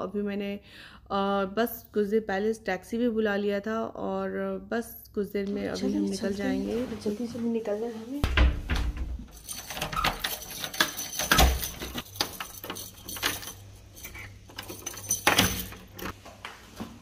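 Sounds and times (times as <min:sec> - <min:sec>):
heavy knocks on door: 0:08.2 - 0:09.3
door lever handle and latch clicking: 0:08.3 - 0:16.1
keys jangling in lock: 0:09.1 - 0:16.2.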